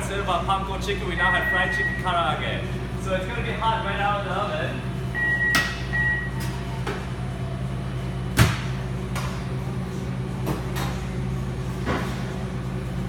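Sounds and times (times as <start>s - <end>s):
steady low hum: 0.0s - 13.0s
oven beeping: 0.8s - 2.5s, 4.9s - 13.0s.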